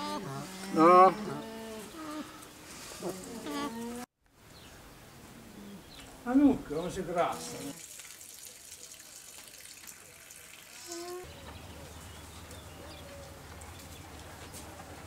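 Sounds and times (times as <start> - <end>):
alpacas humming: 0.0 - 4.1, 7.2 - 7.8
light hiss: 7.2 - 11.2.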